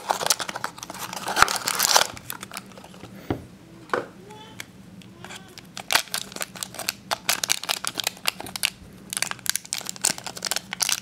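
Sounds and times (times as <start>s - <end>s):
foil bag crinkling: 0.0s - 3.0s, 5.7s - 11.0s.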